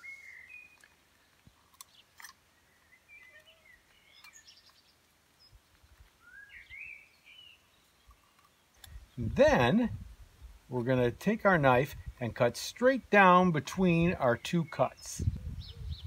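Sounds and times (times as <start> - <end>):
birds chirping and whistling: 0.0 - 1.0, 1.9 - 5.6, 6.2 - 9.4, 14.4 - 16.0.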